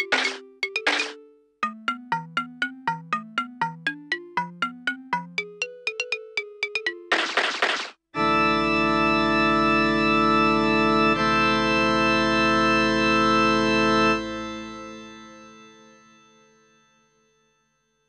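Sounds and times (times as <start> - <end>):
held organ chord: 8.2 - 16.1.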